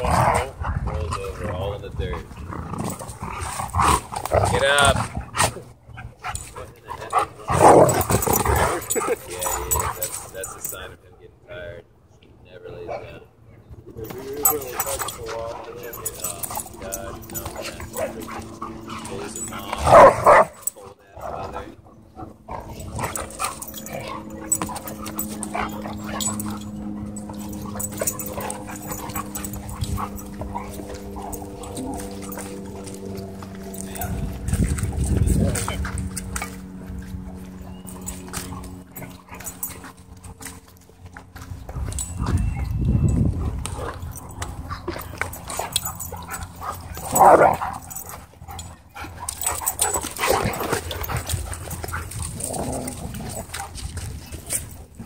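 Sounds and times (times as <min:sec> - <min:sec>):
dogs growling: 0:00.0 - 0:11.3, 0:13.8 - 0:55.0
dogs scuffling: 0:01.2 - 0:11.0, 0:13.8 - 0:55.0
low hum: 0:13.3 - 0:55.0
dog barking: 0:19.8 - 0:20.6.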